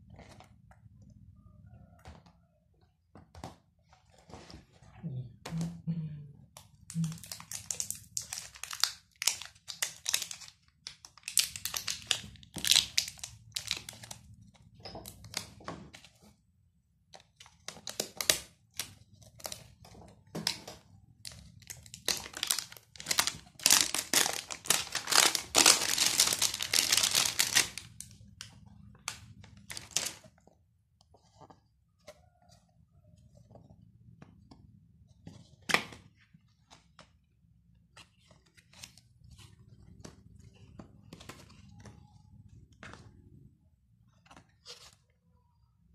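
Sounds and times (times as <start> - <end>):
wrapping crinkling and tearing: 6.9 - 14.3, 21.2 - 28.2, 29.0 - 30.3.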